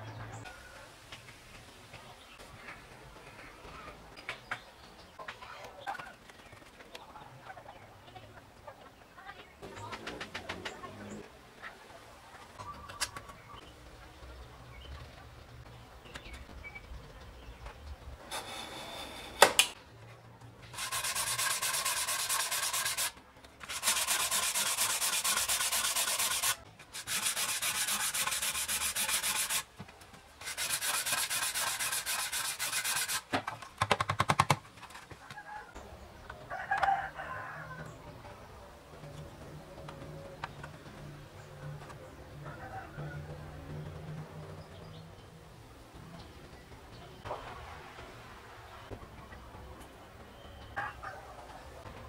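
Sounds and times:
sandpaper rubbing on wood: 0:20.8 - 0:29.7, 0:30.4 - 0:33.3.

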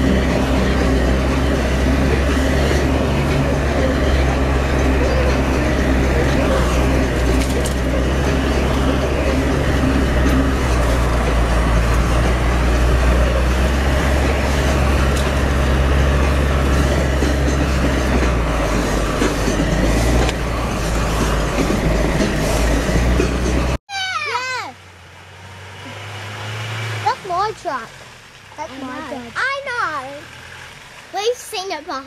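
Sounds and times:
vehicle body rattling: 0:00.0 - 0:23.8
vehicle engine drone: 0:00.0 - 0:32.0.

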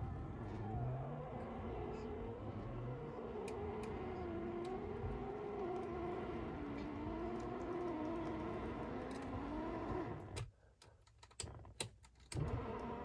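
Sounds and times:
car engine and road hum: 0:00.0 - 0:10.4.

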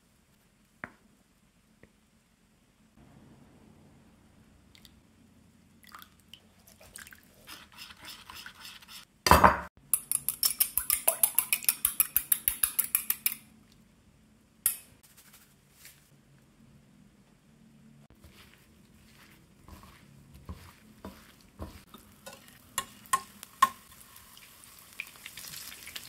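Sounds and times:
metal utensil clinking on ceramic bowl: 0:10.0 - 0:13.4.

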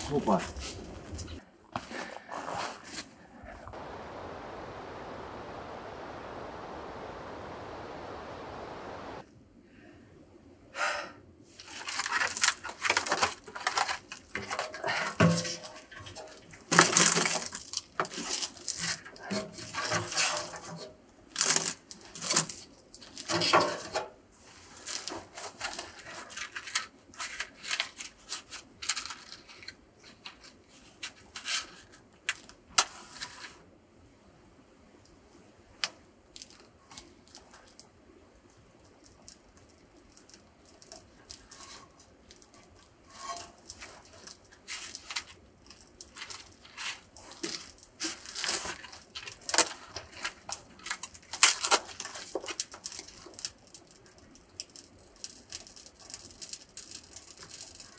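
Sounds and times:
fire crackling faintly: 0:03.5 - 0:09.3, 0:34.8 - 0:57.9
firewood rustled and snapped: 0:11.6 - 0:24.0, 0:24.6 - 0:33.4, 0:38.8 - 0:57.9.

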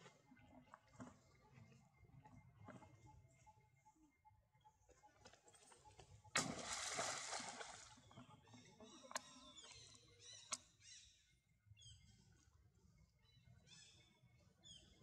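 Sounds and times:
water splashing: 0:06.4 - 0:08.0.

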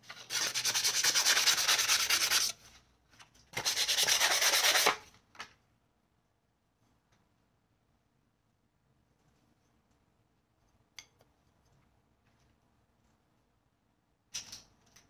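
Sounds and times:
sandpaper scratching on steel: 0:00.1 - 0:02.6, 0:03.6 - 0:05.0.

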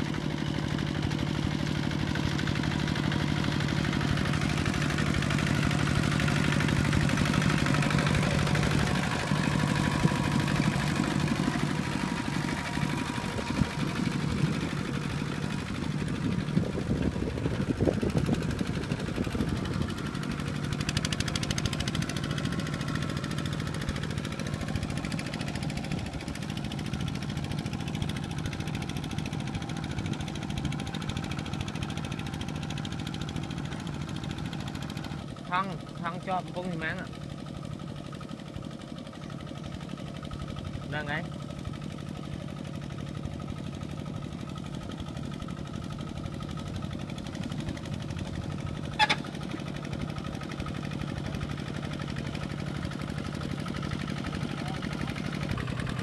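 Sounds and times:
tractor diesel engine running: 0:00.0 - 0:56.0
wheels churning through water: 0:00.0 - 0:56.0.

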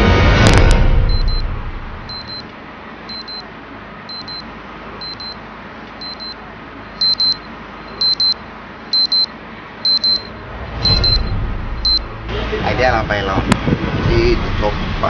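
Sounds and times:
high electronic beeps in pairs: 0:01.1 - 0:01.4, 0:02.1 - 0:02.4, 0:03.1 - 0:03.4, 0:04.1 - 0:04.4, 0:05.0 - 0:05.4, 0:06.0 - 0:06.4, 0:07.0 - 0:08.4, 0:09.0 - 0:09.3, 0:09.9 - 0:12.1.

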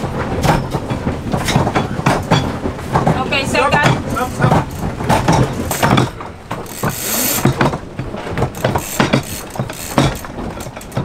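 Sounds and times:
winch clicking and knocking: 0:00.4 - 0:11.0.

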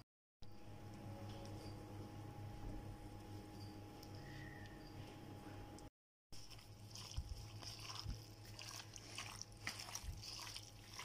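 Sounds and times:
wet squelching: 0:06.4 - 0:11.0.

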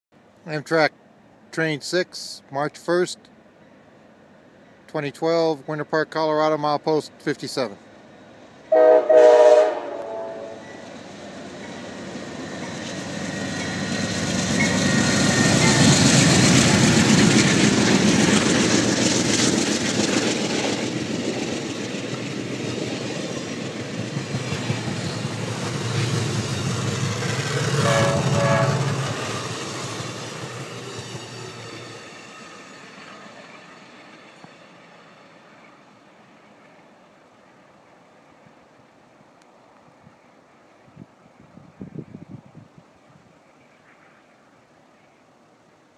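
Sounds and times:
train rumbling past: 0:00.2 - 0:45.1
train horn blasting: 0:08.7 - 0:10.7, 0:27.8 - 0:29.2
wheels clattering over rails: 0:11.6 - 0:33.6.

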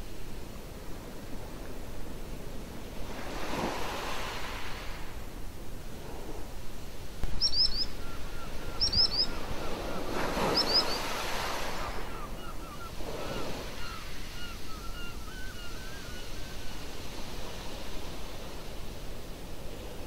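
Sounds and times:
small sea waves washing in: 0:00.0 - 0:07.4, 0:08.0 - 0:15.1
birds chirping: 0:07.2 - 0:16.8.

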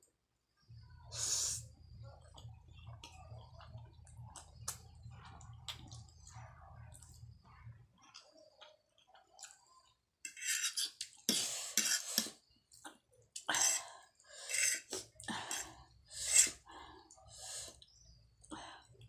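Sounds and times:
chewing and mouth noises: 0:02.2 - 0:10.0
fork scraping a ceramic plate: 0:10.3 - 0:12.4, 0:14.4 - 0:14.9.

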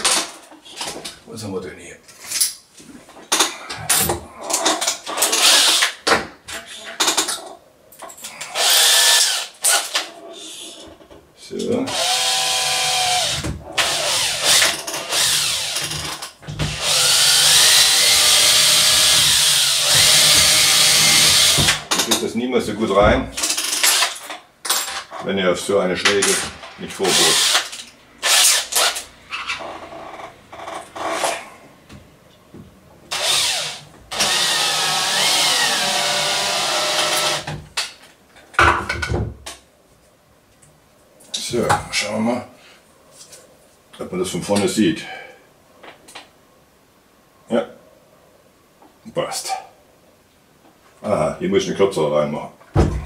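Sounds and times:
power drill boring into wood: 0:05.2 - 0:06.0, 0:08.5 - 0:10.0, 0:11.9 - 0:22.0, 0:27.0 - 0:29.0, 0:33.1 - 0:37.6.

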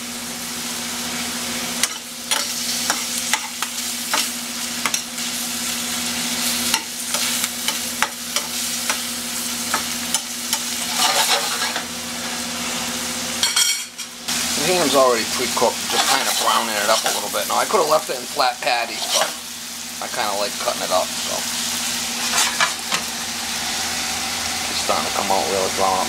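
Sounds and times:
ham sizzling in a skillet: 0:00.0 - 0:26.0
spatula scraping a pan: 0:01.8 - 0:05.4, 0:06.4 - 0:11.9, 0:15.8 - 0:17.7, 0:18.6 - 0:19.4, 0:22.2 - 0:23.1.

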